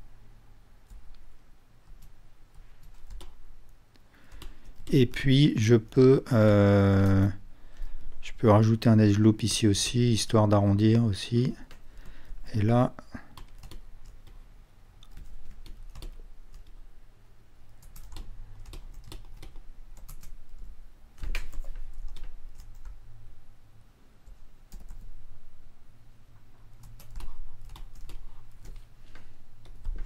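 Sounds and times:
low steady hum: 0.0s - 30.0s.

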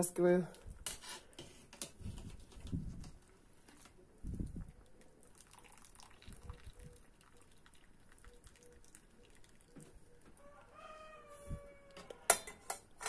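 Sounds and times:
broth dripping into pot: 4.4s - 10.0s.

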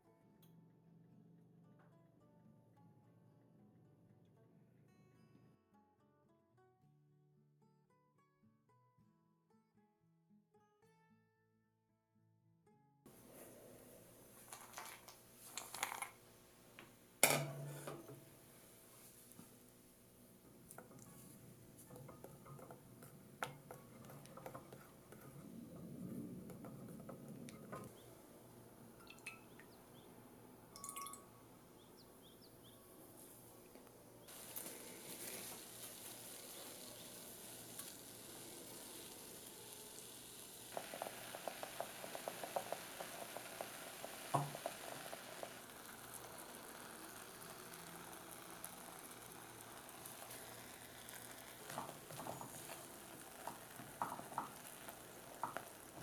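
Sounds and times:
cream boiling and bubbling: 13.1s - 31.2s, 34.2s - 56.0s
cream sizzling in a pot: 13.1s - 33.6s, 34.2s - 56.0s.

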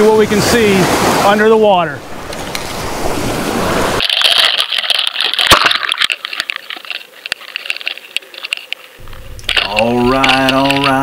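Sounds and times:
wind and surf noise: 0.0s - 11.0s
clicks and rattles: 4.0s - 11.0s.

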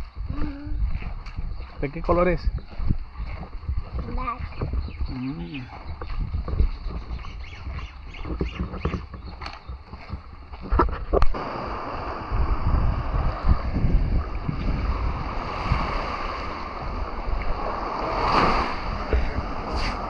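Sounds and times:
wind rumbling on microphone: 0.0s - 20.0s
surf rushing: 10.7s - 20.0s.

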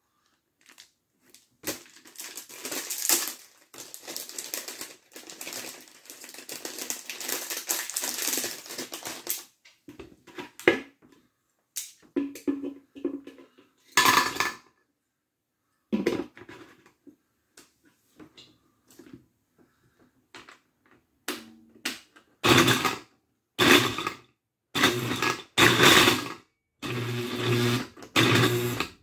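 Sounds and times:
pencils rattling in blender: 0.6s - 9.6s, 22.4s - 23.0s, 24.8s - 29.0s
pencils clattering into glass jar: 1.6s - 9.4s
blender motor pulsing: 22.4s - 23.0s, 23.6s - 24.1s, 24.8s - 29.0s.

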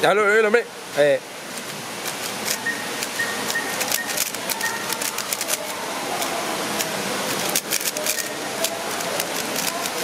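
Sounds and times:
steady hiss: 0.0s - 10.0s
speed cube layers clacking: 2.0s - 10.0s.

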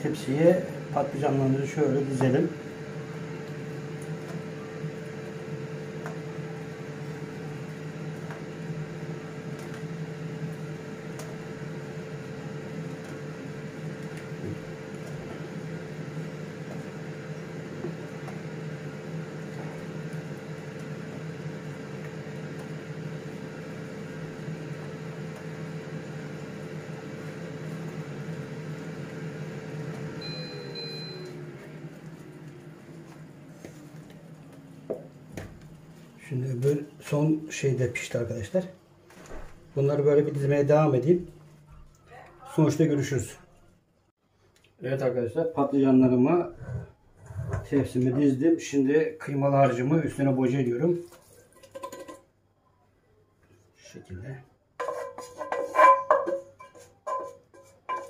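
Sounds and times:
air fryer beeping: 0.0s - 33.4s
fan winding down: 0.0s - 37.3s
air fryer fan hum: 0.0s - 41.7s.

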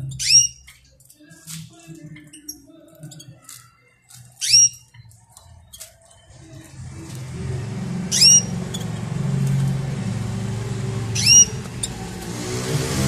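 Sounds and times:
finch chirps: 0.1s - 0.6s, 4.4s - 4.9s, 8.0s - 9.6s, 11.0s - 12.1s
steady low hum: 6.4s - 13.0s.

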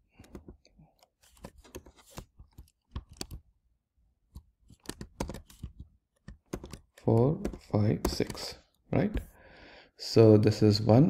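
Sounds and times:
keyboard keystrokes: 1.6s - 3.4s, 4.7s - 8.5s.

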